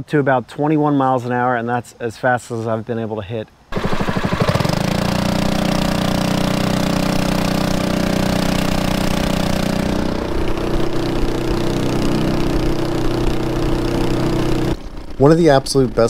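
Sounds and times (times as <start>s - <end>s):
small engine running: 3.7s - 16.0s.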